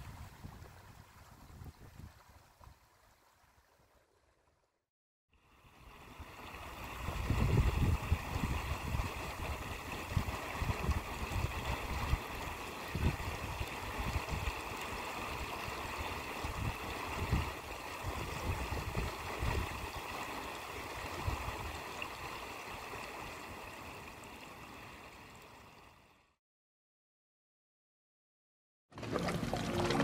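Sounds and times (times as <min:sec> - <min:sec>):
wind buffeting microphone: 0:00.0 - 0:02.4, 0:06.9 - 0:14.6, 0:16.4 - 0:20.0
water rushing: 0:05.5 - 0:26.2, 0:28.9 - 0:30.0.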